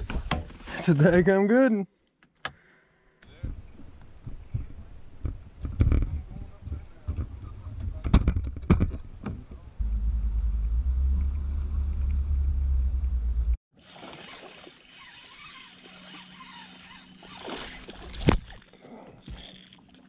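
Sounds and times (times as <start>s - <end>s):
low rumble: 9.6s - 13.6s
water lapping: 13.8s - 20.0s.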